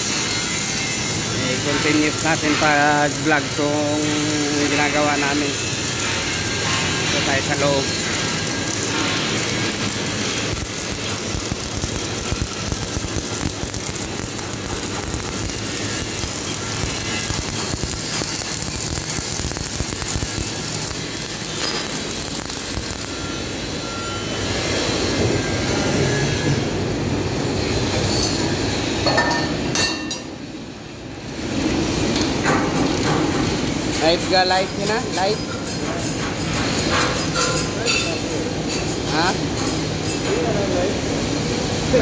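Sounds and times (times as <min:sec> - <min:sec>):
arc welding crackle: 0:00.0 - 0:25.2, 0:31.1 - 0:42.0.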